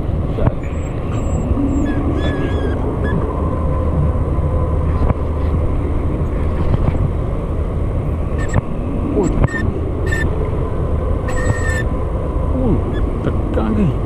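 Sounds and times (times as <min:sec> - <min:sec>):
low motor rumble: 0:00.0 - 0:14.0
high squeaks: 0:00.6 - 0:03.4, 0:08.3 - 0:08.6, 0:09.2 - 0:10.4, 0:11.2 - 0:11.9.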